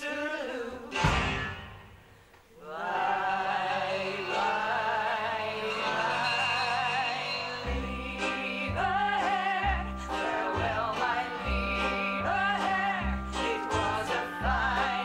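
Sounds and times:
person singing with vibrato: 0.0 - 15.0.

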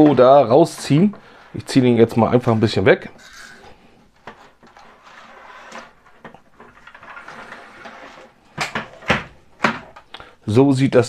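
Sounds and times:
plastic model sliding and scraping: 0.0 - 8.4.

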